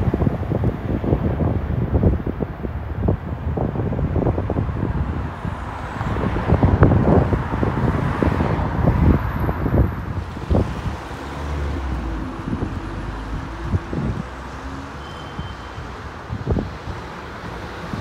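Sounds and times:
wind buffeting microphone: 0.0 - 18.0
train rumble: 9.2 - 15.0
diesel train engine drone: 9.3 - 15.2.

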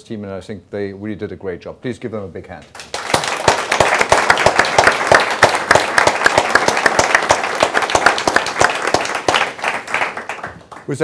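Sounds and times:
sharp loud claps: 2.7 - 11.0
audience applauding: 2.8 - 11.0.

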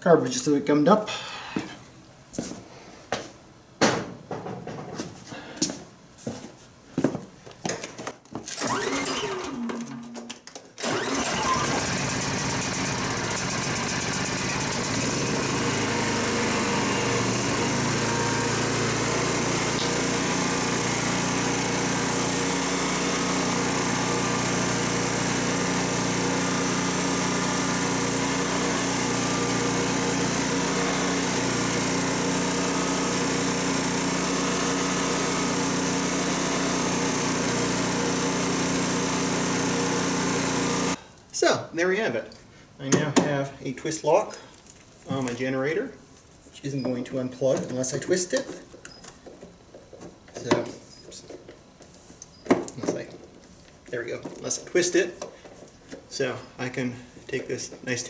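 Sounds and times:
person talking: 0.0 - 1.7, 41.3 - 48.6, 50.4 - 51.3, 53.9 - 55.2, 56.1 - 58.0
generator engine running: 8.6 - 9.7, 10.8 - 41.0.

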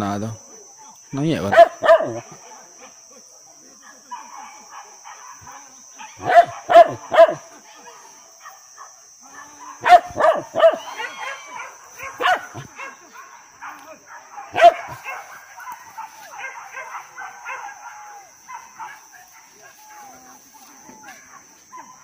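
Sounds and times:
dogs barking: 1.5 - 2.4, 3.8 - 22.0.

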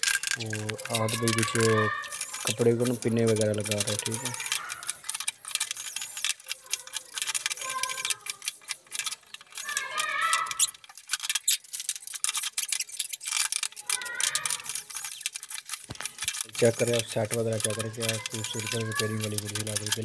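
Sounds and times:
metallic clicking of hand tools: 0.0 - 20.0.

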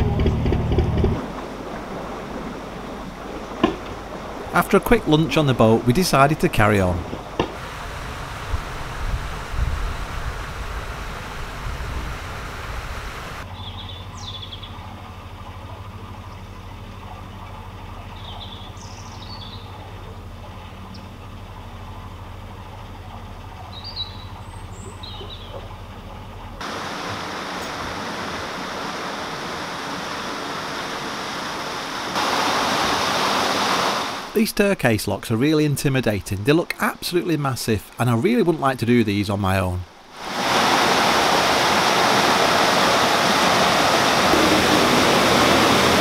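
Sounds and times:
steady rushing hiss: 1.2 - 13.4, 26.6 - 46.0
wind on microphone: 7.1 - 13.4
electric boat motor humming: 7.2 - 14.2, 41.4 - 46.0
birds chirping: 13.2 - 14.9, 16.2 - 21.6, 23.0 - 26.6, 35.5 - 39.9.

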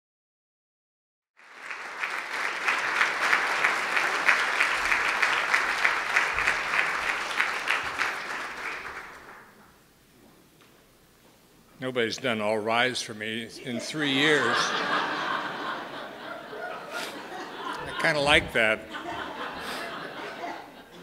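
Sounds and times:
audience applauding: 1.4 - 9.6, 13.9 - 21.0.

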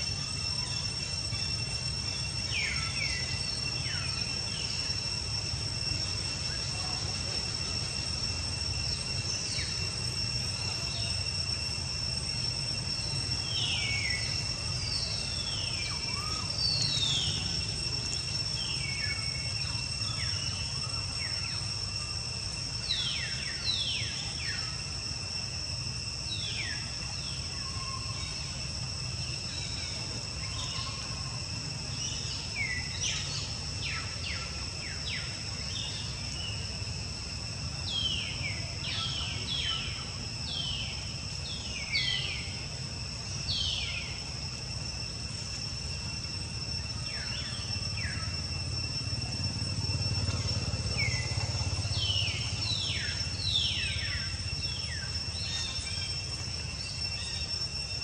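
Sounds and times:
birds whistling calls: 0.0 - 25.2, 26.2 - 58.0
insects droning: 0.0 - 58.0.

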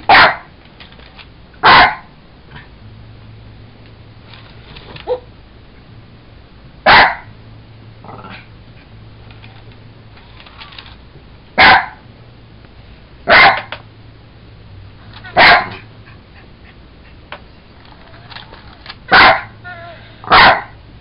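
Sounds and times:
dog barking: 0.1 - 0.5, 1.6 - 2.7, 6.8 - 7.3, 11.6 - 12.0, 13.3 - 13.7, 15.2 - 15.9, 19.1 - 19.6, 20.2 - 20.8.

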